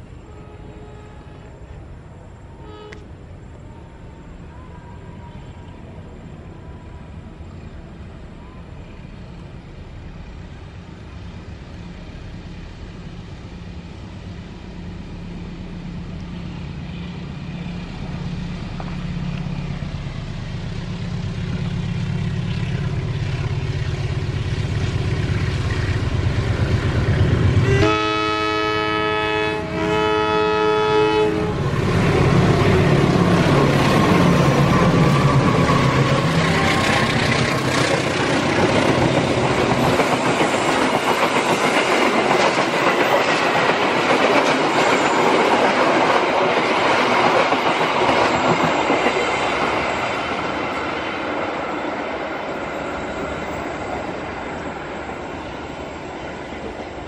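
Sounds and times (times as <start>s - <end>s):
diesel locomotive engines: 0.0s - 57.0s
train horn blasts: 0.1s - 1.8s, 2.5s - 3.9s, 27.5s - 37.5s
wheels on rails: 31.8s - 56.0s.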